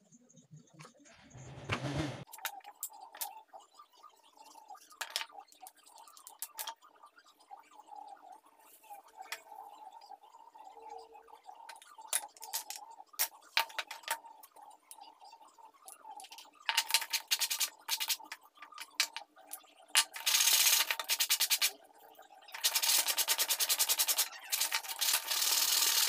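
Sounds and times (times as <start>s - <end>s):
wooden pieces clicking and knocking: 4.9s - 6.8s, 11.7s - 15.1s, 16.0s - 21.8s, 22.5s - 26.0s
hand-sanding wood with sandpaper: 20.2s - 21.7s, 22.6s - 26.0s.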